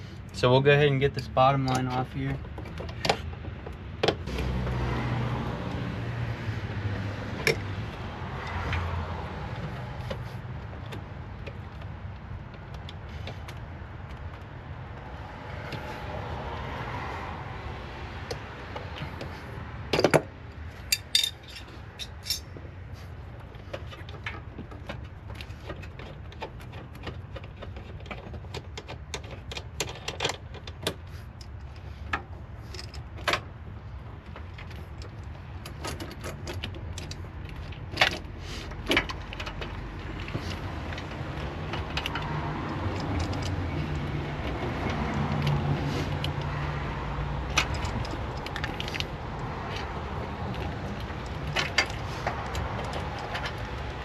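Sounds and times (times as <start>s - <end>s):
hand tools clinking on metal: 20.8s - 22.5s.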